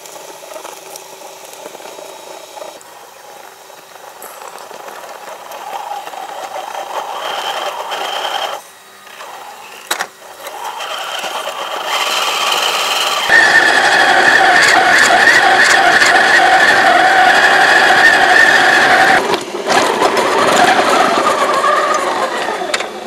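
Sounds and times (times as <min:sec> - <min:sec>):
rc car motor whining: 0:00.0 - 0:23.0.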